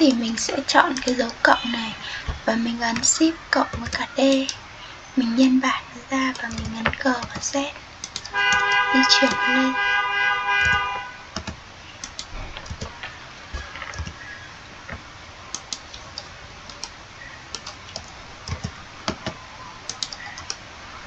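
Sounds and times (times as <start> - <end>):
computer keyboard keys clicking: 2.9 - 4.6, 6.3 - 9.4, 11.4 - 13.0, 13.6 - 14.2, 14.9 - 20.6.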